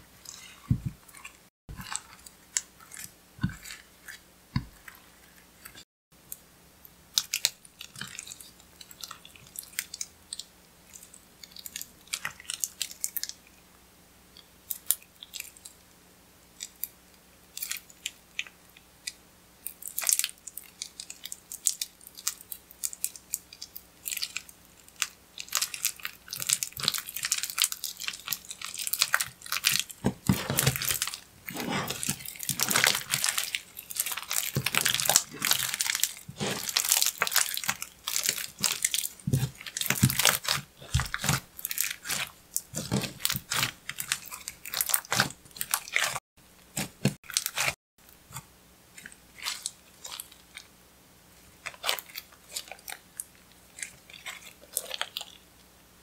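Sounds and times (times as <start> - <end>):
sticky slime clicks and crackles: 32.0 - 47.7.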